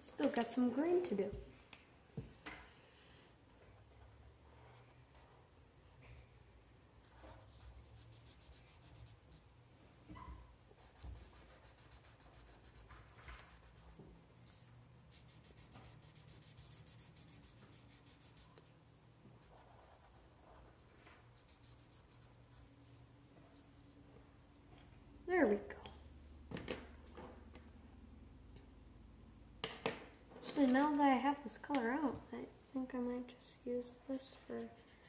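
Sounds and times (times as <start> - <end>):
marker scribbling on paper: 7.0 - 9.5, 10.8 - 18.7, 34.3 - 35.0.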